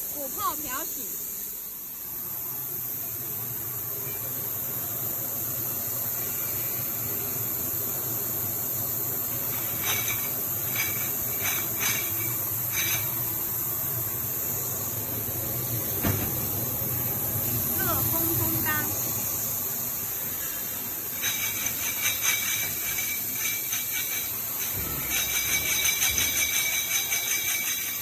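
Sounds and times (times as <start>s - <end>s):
parts washer humming and hissing: 0.0s - 28.0s
metal parts clinking: 9.6s - 13.2s, 21.2s - 28.0s.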